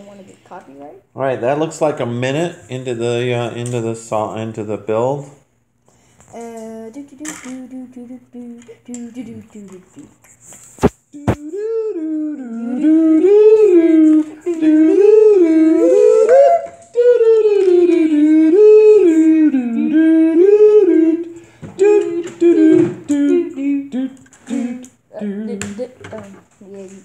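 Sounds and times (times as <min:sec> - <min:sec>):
person singing wordless tune: 0:06.3 - 0:10.2, 0:11.1 - 0:26.4.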